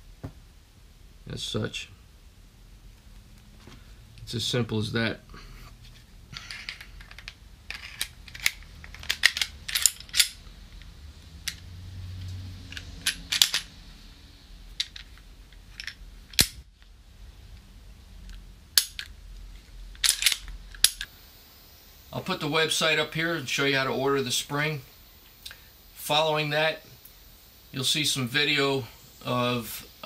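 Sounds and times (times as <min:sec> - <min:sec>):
crisp metallic snap: 0:15.8 - 0:16.6.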